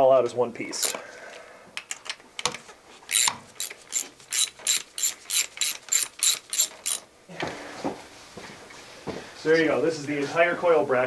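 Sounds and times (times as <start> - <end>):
socket ratchet clicking: 1.8 - 7.1.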